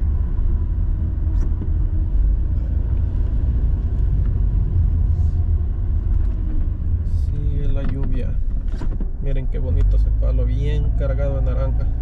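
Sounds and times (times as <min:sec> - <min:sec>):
car driving on wet road: 0:00.0 - 0:12.0.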